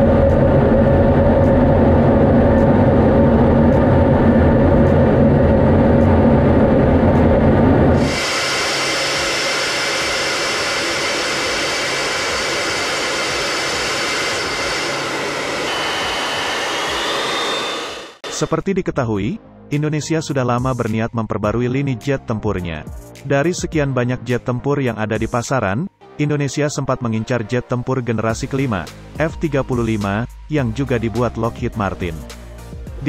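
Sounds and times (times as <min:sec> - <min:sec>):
jet engine low rumble: 0:00.0 - 0:18.5
hissy jet whine: 0:00.0 - 0:18.7.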